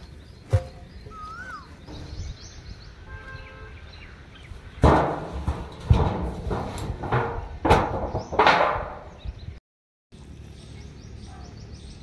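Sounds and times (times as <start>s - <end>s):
birds calling: 0.0s - 5.5s, 7.5s - 9.6s, 10.2s - 12.0s
whistled bird call: 0.9s - 2.4s.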